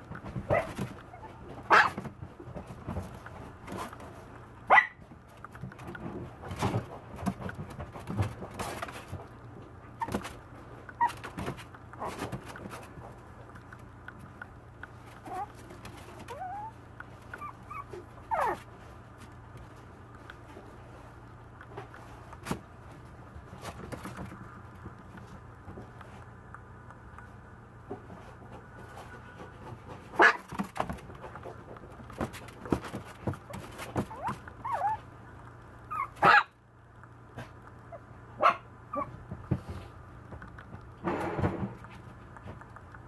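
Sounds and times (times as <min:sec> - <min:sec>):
puppy whining: 0:00.5 - 0:01.9, 0:10.9 - 0:11.3, 0:15.1 - 0:18.7, 0:33.9 - 0:35.1, 0:35.8 - 0:36.4, 0:38.9 - 0:39.2
puppy barking: 0:00.5 - 0:02.0, 0:04.7 - 0:05.0, 0:17.4 - 0:18.6, 0:30.2 - 0:30.5, 0:35.9 - 0:36.6, 0:37.9 - 0:39.1.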